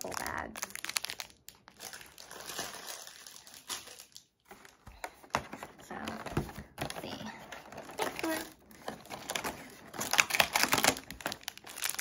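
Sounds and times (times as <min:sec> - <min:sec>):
plastic bag crinkling: 0:00.0 - 0:05.0, 0:07.7 - 0:12.0
cardboard packaging rustling: 0:00.0 - 0:12.0.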